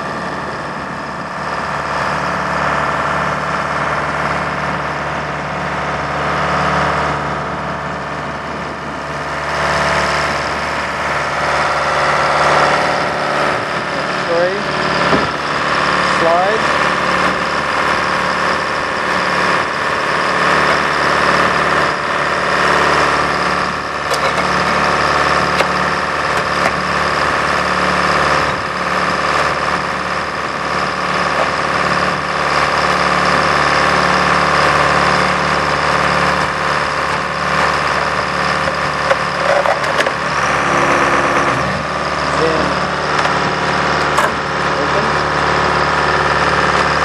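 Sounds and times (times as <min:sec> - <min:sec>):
diesel engine running: 0:00.0 - 0:47.0.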